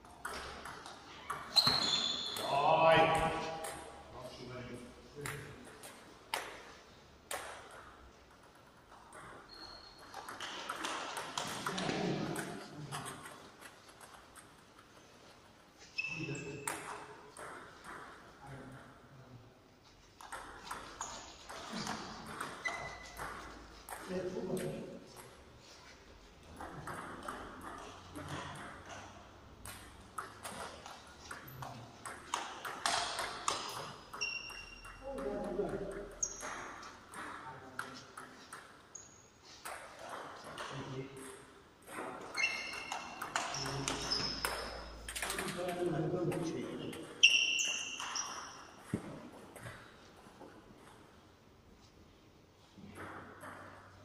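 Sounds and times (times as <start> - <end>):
table tennis ball hits: 20.2 - 25.4, 26.5 - 38.8, 39.6 - 45.6.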